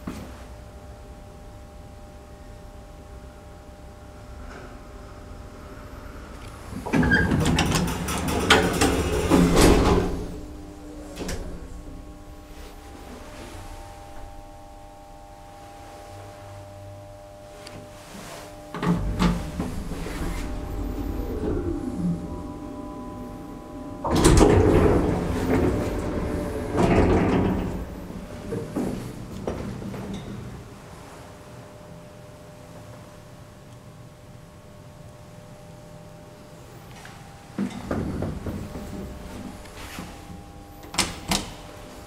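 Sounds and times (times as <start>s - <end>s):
faint elevator hum with tones: 0.0s - 42.0s
elevator doors clattering shut: 6.7s - 12.6s, 18.7s - 30.8s, 37.6s - 41.7s.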